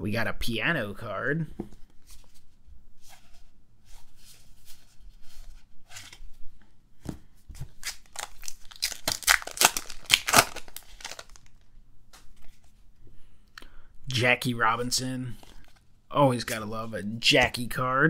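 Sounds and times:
plastic wrapper tearing and crinkling: 7.8s - 11.7s.

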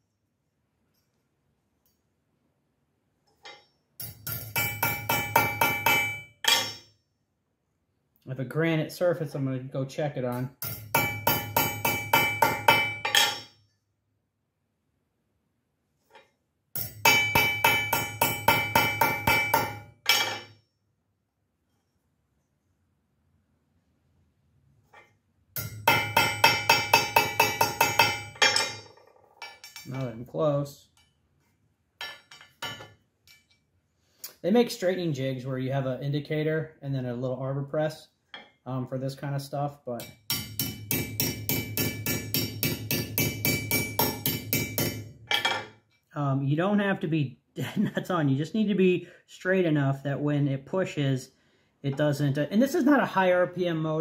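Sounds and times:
hammer striking metal: 3.5s - 6.9s, 10.3s - 13.6s, 16.8s - 20.6s, 25.6s - 30.1s, 32.0s - 33.6s, 40.0s - 45.7s.

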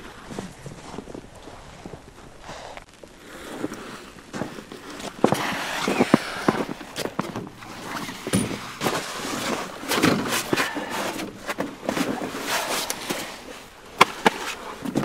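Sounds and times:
boots crunching on snow: 0.0s - 10.7s.

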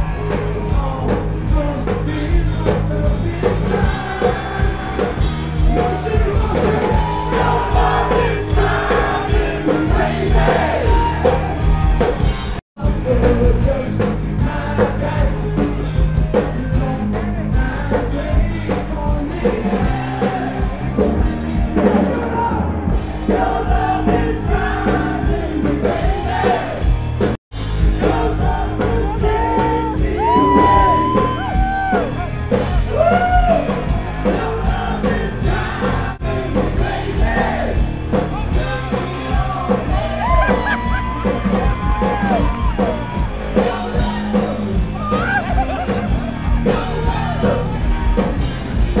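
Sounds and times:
live band with singing: 0.0s - 49.0s
crowd shouting: 4.2s - 12.3s, 28.0s - 49.0s.

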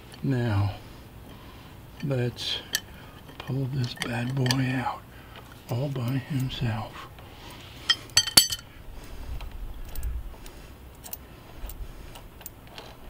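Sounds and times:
metal bolt clinking: 2.0s - 4.8s, 7.9s - 8.7s.

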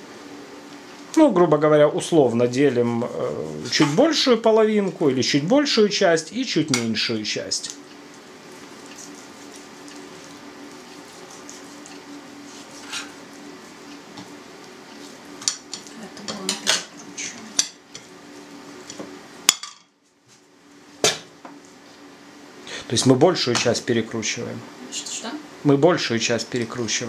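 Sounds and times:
low steady hum: 0.0s - 27.0s
knife cutting meat on board: 8.8s - 13.2s.

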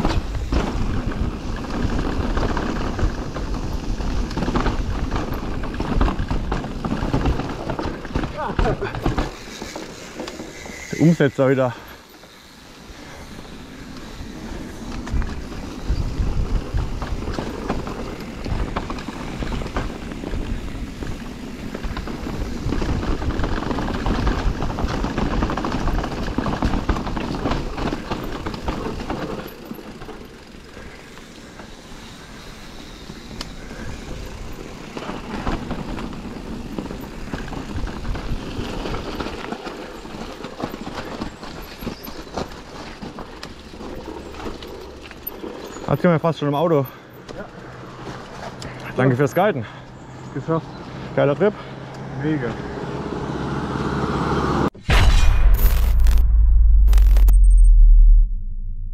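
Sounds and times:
bike tyres rumbling on rough ground: 0.0s - 50.7s
wind noise on microphone: 14.9s - 28.2s.

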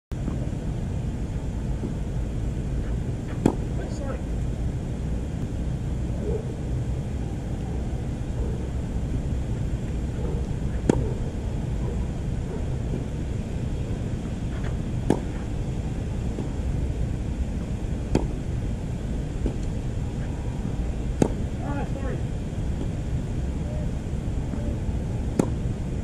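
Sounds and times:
low outdoor rumble: 0.1s - 26.0s
tennis racket hitting ball: 3.3s - 3.7s, 10.7s - 11.2s, 14.5s - 15.5s, 18.1s - 18.4s, 19.4s - 19.6s, 21.2s - 21.4s, 25.3s - 25.6s.

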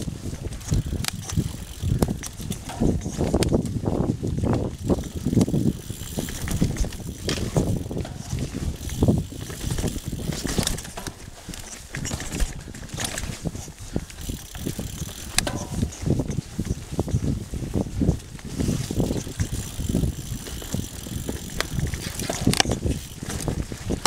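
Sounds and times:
bike rattling over bumps: 0.0s - 24.0s
bike tyres rolling over leaves: 0.0s - 24.0s
sharp clicks: 0.5s - 3.6s.

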